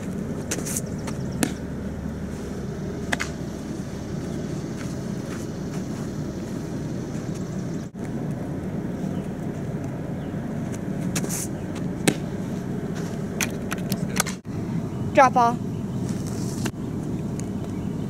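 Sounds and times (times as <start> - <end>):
low outdoor rumble: 0.0 - 18.0
softball smacking into mitt: 1.1 - 1.6, 12.0 - 12.3.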